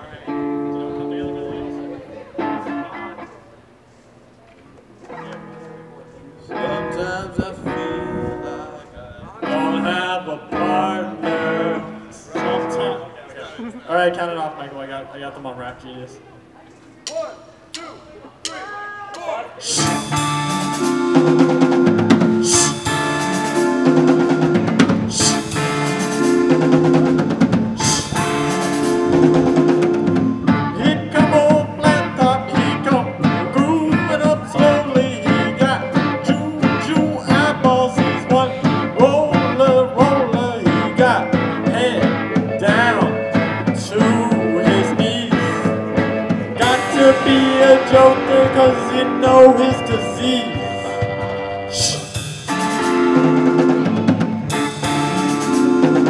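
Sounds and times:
live rock band playing: 0:00.3 - 0:03.4, 0:09.4 - 0:13.2, 0:19.6 - 0:56.0
man singing: 0:06.5 - 0:13.2, 0:19.6 - 0:20.4, 0:22.1 - 0:24.0, 0:25.1 - 0:25.8, 0:27.7 - 0:29.7, 0:30.5 - 0:52.2.

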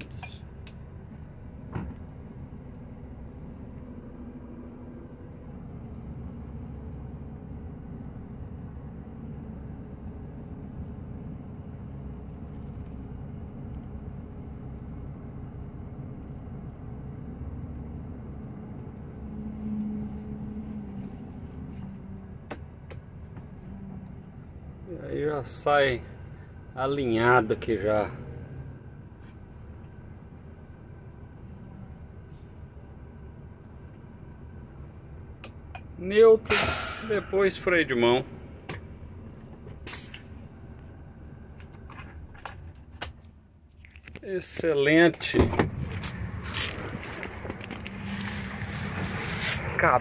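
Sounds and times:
diesel truck engine running low: 0:00.0 - 0:50.0
click inside truck cab: 0:45.1 - 0:48.0.

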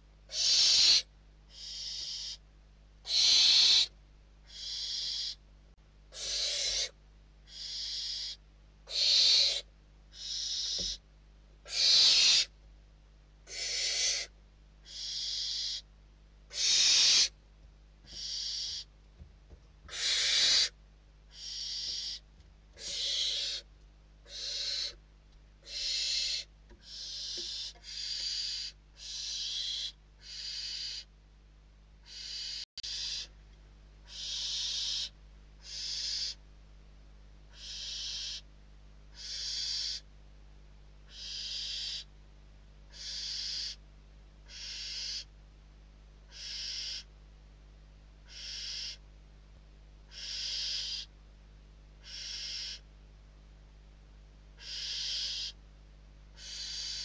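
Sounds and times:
owl chicks hissing begging calls: 0:00.3 - 0:02.4, 0:03.0 - 0:05.4, 0:06.1 - 0:11.0, 0:11.6 - 0:12.5, 0:13.4 - 0:15.9, 0:16.5 - 0:17.4, 0:18.1 - 0:18.9, 0:19.9 - 0:22.2, 0:22.8 - 0:25.0, 0:25.6 - 0:31.1, 0:32.0 - 0:33.3, 0:34.0 - 0:36.4, 0:37.5 - 0:38.5, 0:39.1 - 0:40.1, 0:41.1 - 0:42.1, 0:42.9 - 0:43.8, 0:44.4 - 0:45.3, 0:46.3 - 0:47.1, 0:48.2 - 0:49.0, 0:50.1 - 0:51.1, 0:52.0 - 0:52.9, 0:54.6 - 0:55.6, 0:56.3 - 0:57.0.

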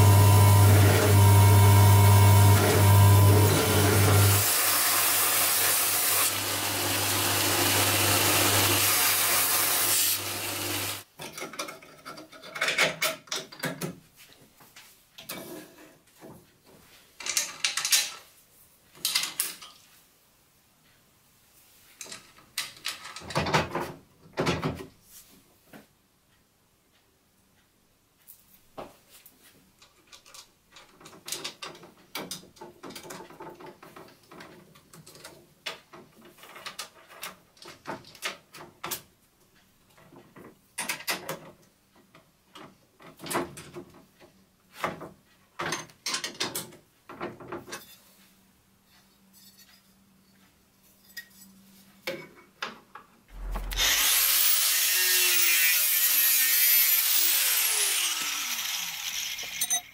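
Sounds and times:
angle grinder running: 0:00.0 - 0:11.0, 0:53.3 - 0:59.9.

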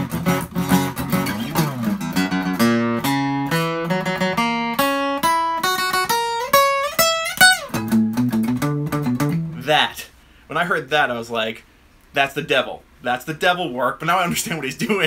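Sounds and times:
acoustic guitar playing: 0:00.0 - 0:09.9.

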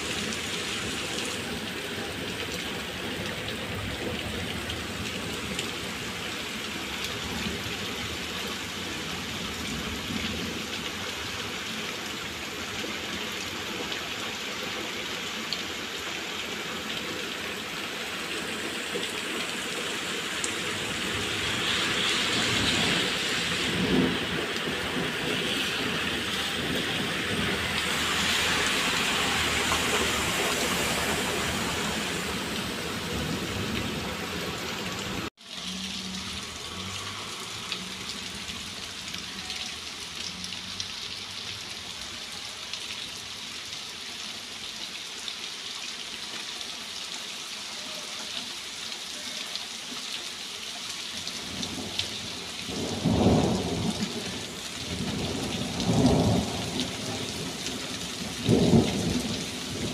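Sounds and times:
heavy rain on pavement: 0:00.0 - 0:59.9
water streaming into drain: 0:17.7 - 0:41.8.

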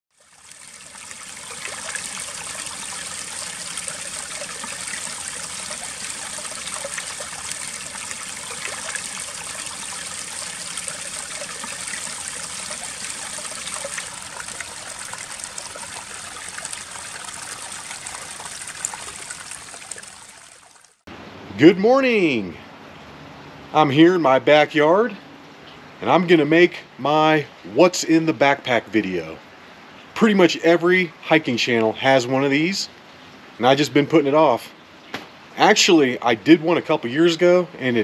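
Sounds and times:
water trickling over stones: 0:00.1 - 0:21.1.

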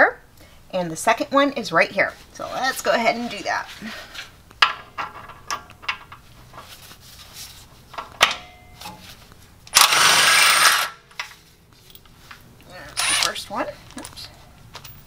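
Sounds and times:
impact wrench running: 0:09.7 - 0:11.0, 0:13.0 - 0:13.4.

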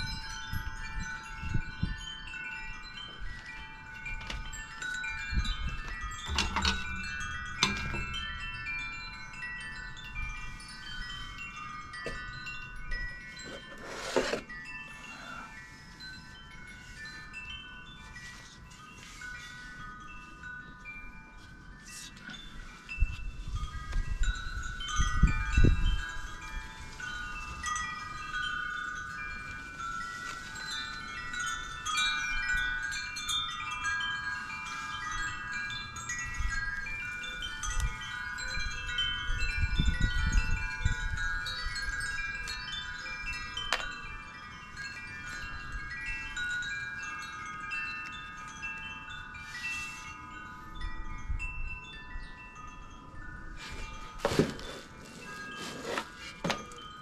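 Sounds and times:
wind rumble on microphone: 0:00.0 - 0:13.6, 0:22.1 - 0:33.8, 0:35.0 - 0:46.8
wind chimes ringing: 0:00.0 - 0:57.0.

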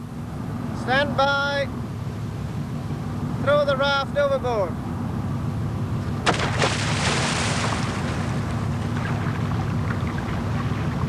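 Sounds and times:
steady low hum: 0:00.0 - 0:11.0
container smacking into water: 0:06.2 - 0:08.4
water splash: 0:06.2 - 0:11.0.

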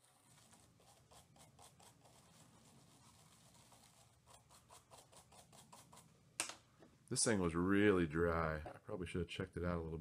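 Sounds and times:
small brush scrubbing metal: 0:00.0 - 0:06.1.

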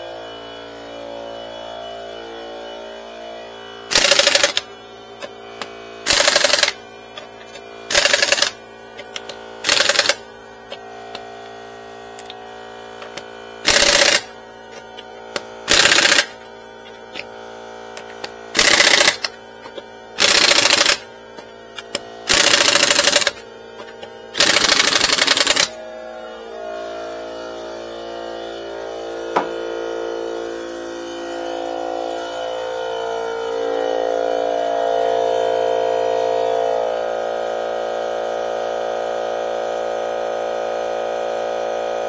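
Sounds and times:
impact wrench rattling: 0:03.9 - 0:04.6, 0:05.2 - 0:10.8, 0:13.0 - 0:17.4, 0:18.0 - 0:25.8.

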